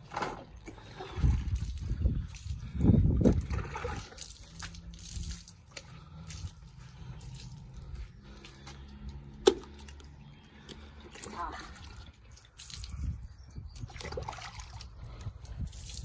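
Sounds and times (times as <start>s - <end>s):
water dripping onto paving stones: 1.4s - 16.0s.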